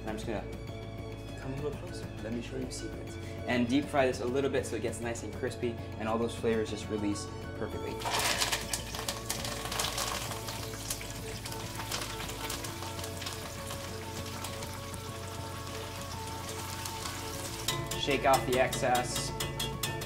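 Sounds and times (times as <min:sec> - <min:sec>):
herbs sizzling in hot oil: 0:08.0 - 0:19.4.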